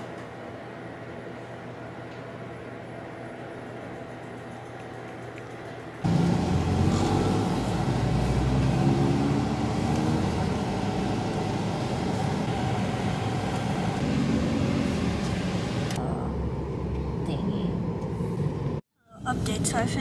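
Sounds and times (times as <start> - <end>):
car cabin road and engine noise: 6.0 - 20.0.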